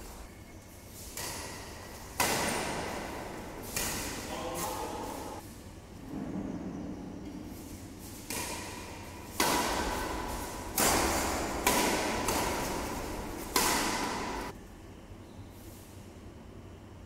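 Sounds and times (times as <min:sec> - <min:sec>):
rackets hitting shuttlecock: 0:01.1 - 0:05.2, 0:08.1 - 0:14.6.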